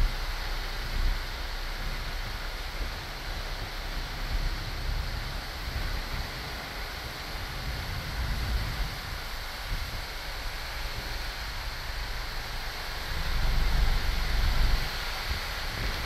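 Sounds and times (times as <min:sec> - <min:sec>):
car interior road rumble: 0:00.0 - 0:16.0.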